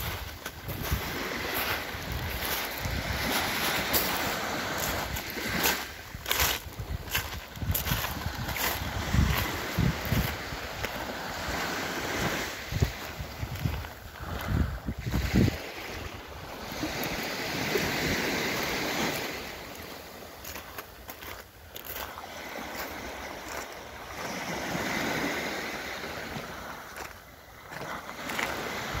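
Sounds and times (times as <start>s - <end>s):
wind buffeting microphone: 0.0s - 19.3s
waves breaking on pebble beach: 0.0s - 29.0s.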